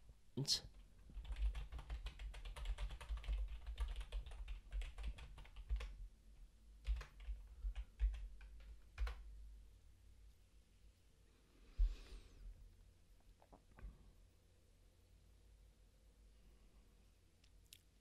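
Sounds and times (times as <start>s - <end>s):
typing on keyboard: 0.7s - 6.0s, 6.8s - 9.3s.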